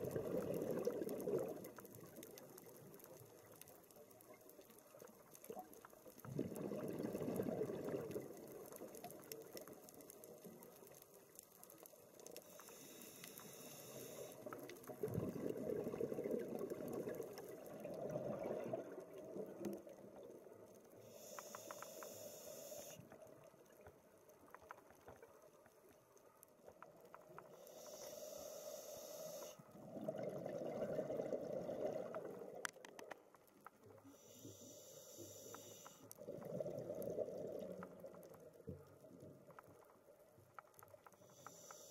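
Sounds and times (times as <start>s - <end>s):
exhaled bubbles gurgling underwater: 0.0s - 3.6s, 5.1s - 10.6s, 14.1s - 20.7s, 29.7s - 32.8s, 36.2s - 39.5s
regulator inhalation hiss: 12.4s - 14.6s, 21.0s - 23.0s, 27.5s - 29.6s, 34.1s - 36.1s, 41.2s - 41.9s.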